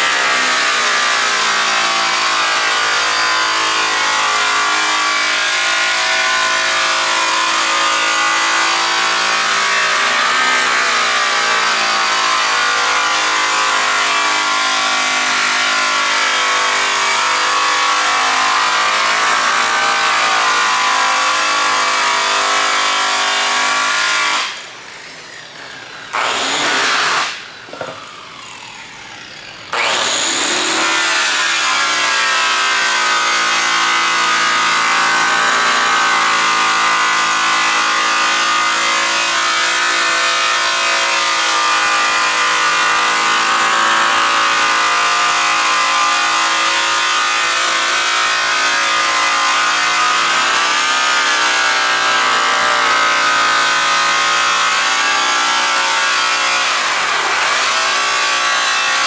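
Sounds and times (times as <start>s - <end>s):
rotary polisher motor whine: 0.0s - 43.0s.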